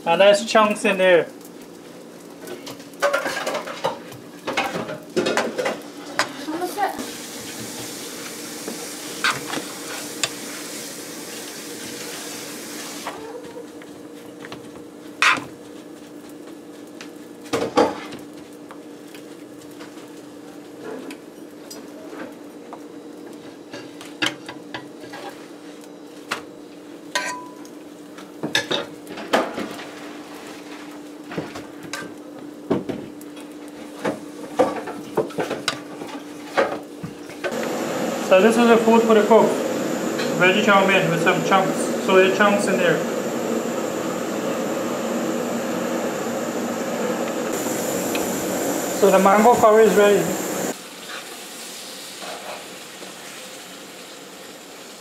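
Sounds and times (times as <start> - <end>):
hiss: 7.0 - 13.2, 47.2 - 55.0
low hum: 39.4 - 50.7.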